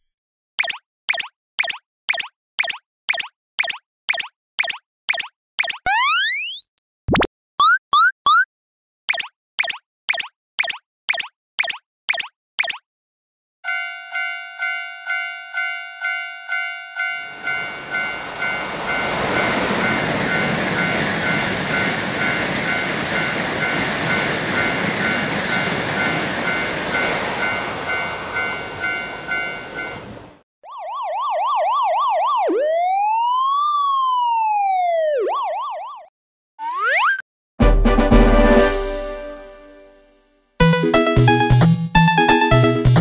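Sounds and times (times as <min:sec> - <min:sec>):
siren-like sound effect wailing: 0:05.9 - 0:06.6, 0:27.9 - 0:37.0
railroad crossing bell ringing: 0:13.6 - 0:30.4
train rushing past: 0:17.2 - 0:30.4.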